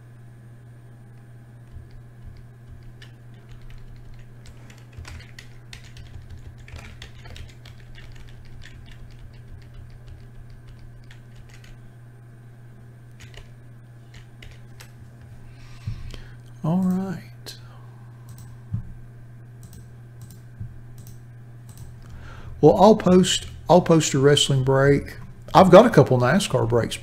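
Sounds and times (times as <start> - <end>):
steady low hum: 0.0 - 27.0
keyboard and mouse clicking: 1.6 - 11.8, 13.2 - 13.5, 14.1 - 14.9, 18.3 - 18.6, 19.6 - 20.4, 21.0 - 21.9.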